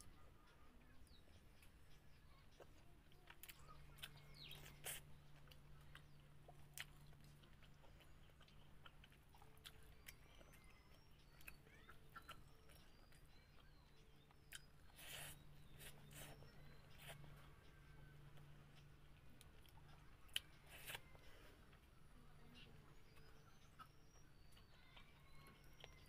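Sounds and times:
low steady hum: 0.0s - 26.0s
person chewing with mouth clicks: 1.1s - 21.9s.

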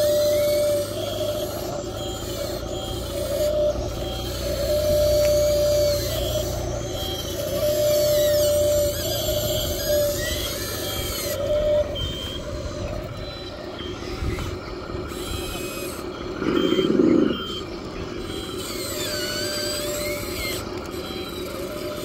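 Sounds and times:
model excavator motors whirring: 0.0s - 22.0s
short beeps: 11.5s - 14.6s, 16.2s - 18.6s.

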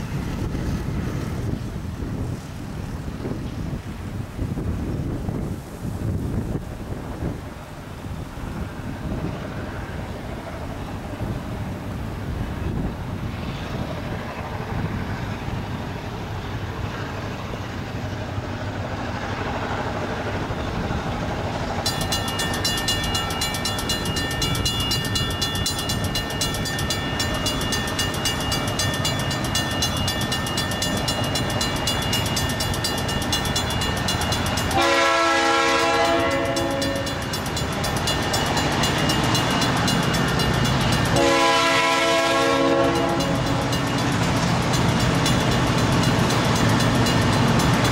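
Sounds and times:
diesel locomotive rumble: 0.0s - 47.9s
crossing bell ringing: 21.8s - 47.9s
locomotive air horn blast: 34.7s - 37.2s, 41.1s - 43.5s.

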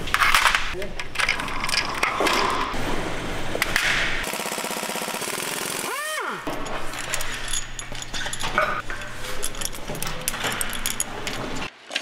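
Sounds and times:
pneumatic ratchet rattling: 6.5s - 11.7s.

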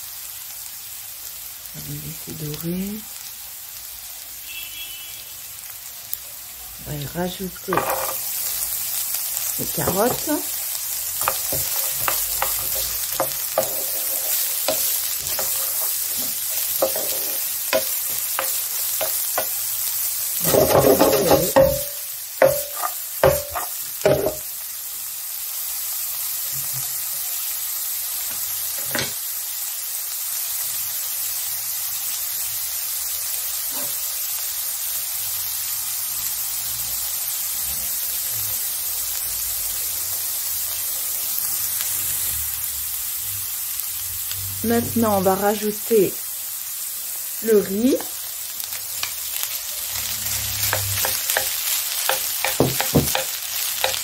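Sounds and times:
vegetables sizzling in oil: 0.0s - 54.0s
utensil scraping and knocking pan: 7.7s - 8.2s, 11.2s - 19.5s, 20.4s - 24.4s, 50.6s - 54.0s.

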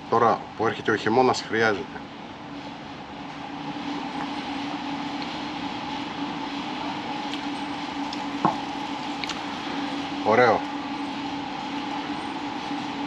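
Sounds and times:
steady mechanical hum: 0.0s - 13.0s.

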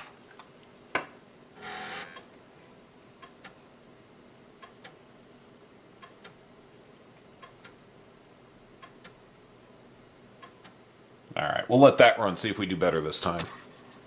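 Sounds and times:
floppy drive buzz: 1.5s - 2.4s.

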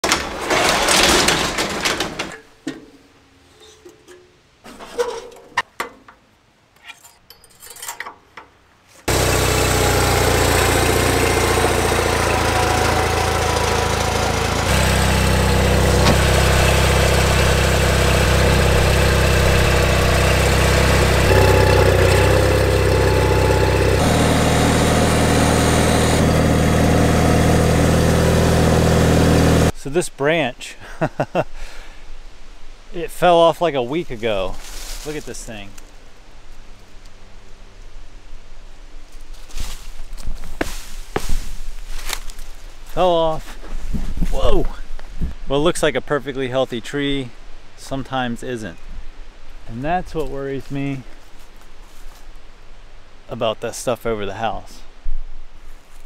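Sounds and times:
garage door rolling up: 0.0s - 2.5s, 9.1s - 29.7s
lawn tractor engine running: 0.0s - 2.8s, 9.1s - 29.7s.

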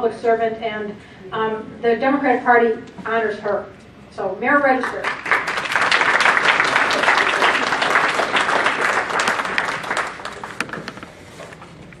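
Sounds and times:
audience applauding: 5.0s - 10.9s.

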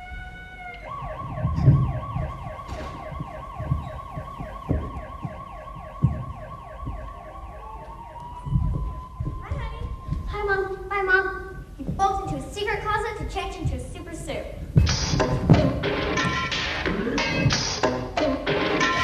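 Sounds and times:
siren wail sliding upward: 0.0s - 10.3s
siren yelp warbling: 0.0s - 10.9s
dull thumps: 0.9s - 10.4s, 14.7s - 18.3s.

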